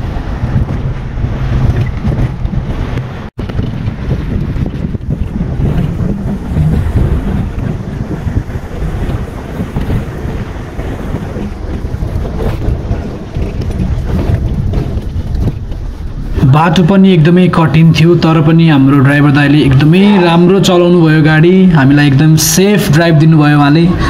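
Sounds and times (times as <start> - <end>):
engine and tyres rumbling: 0.0 - 24.0
wind buffeting microphone: 0.0 - 24.0.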